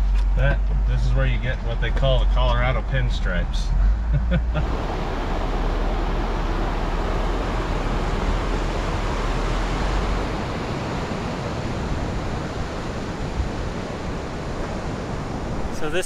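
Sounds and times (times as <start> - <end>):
low rumble of vehicle crawling: 0.0 - 12.8
creek rushing over rocks: 4.6 - 16.0.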